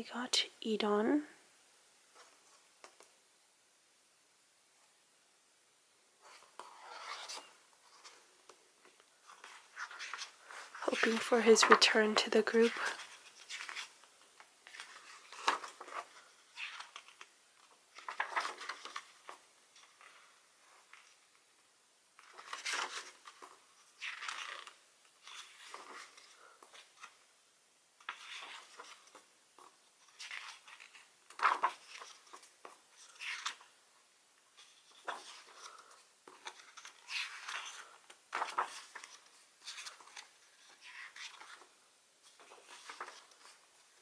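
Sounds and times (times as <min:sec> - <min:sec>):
book pages turning: 0:06.2 - 0:21.3, 0:22.2 - 0:27.3, 0:28.0 - 0:33.8, 0:34.5 - 0:43.7.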